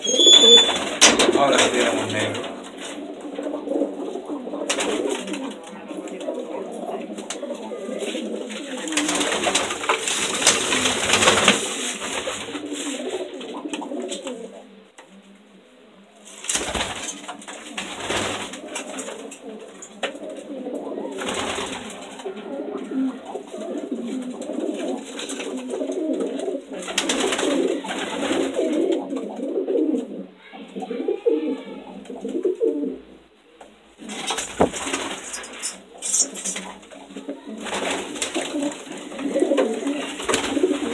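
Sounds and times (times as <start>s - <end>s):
pigeons cooing: 0.0s - 40.9s.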